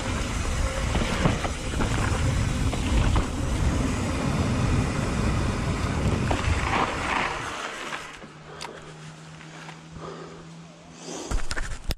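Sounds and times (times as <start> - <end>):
wind buffeting microphone: 0.0 - 7.5
bike rattling: 0.0 - 9.9
bike tyres rumbling on gravel: 0.0 - 10.2.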